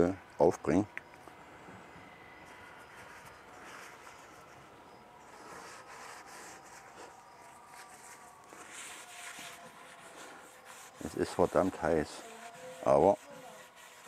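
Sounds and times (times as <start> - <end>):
paper towel rustling and rubbing: 2.5 - 4.6, 5.3 - 14.0.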